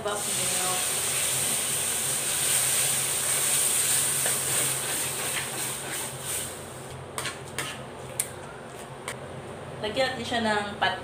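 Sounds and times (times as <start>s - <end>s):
liquid sizzling in hot wok: 0.0s - 6.9s.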